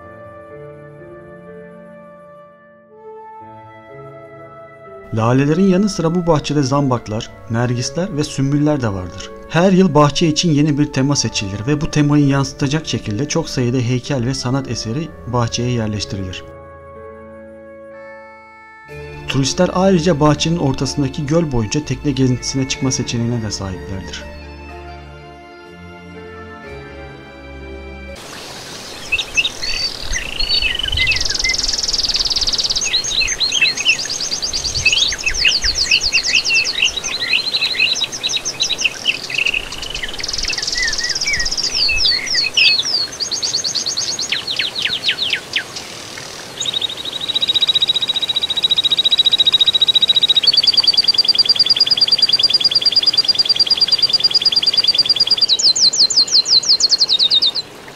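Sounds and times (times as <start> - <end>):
birds chirping and whistling: 28.5 - 57.7
rapidly pulsed bird trill: 28.6 - 57.7.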